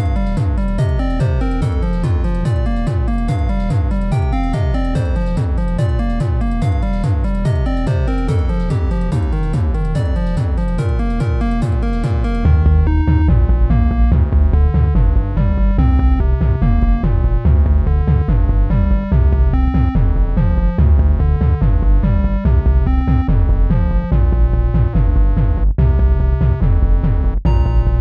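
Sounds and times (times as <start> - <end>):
synthesizer notes: 0.0 - 14.2
heavy bass: 0.0 - 28.0.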